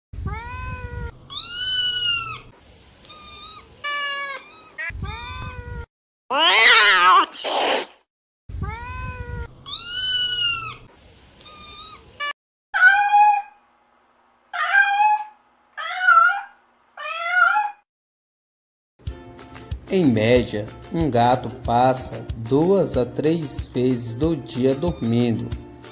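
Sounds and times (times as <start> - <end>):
cats meowing: 0.2 - 7.4, 8.6 - 13.6, 14.6 - 17.8, 24.6 - 25.9.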